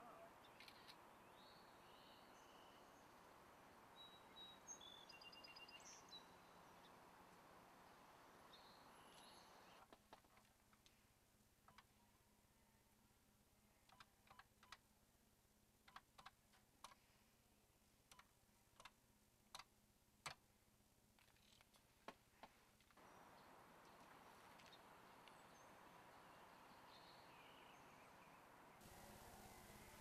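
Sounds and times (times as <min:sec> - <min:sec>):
faint background hiss: 0:00.0 - 0:30.0.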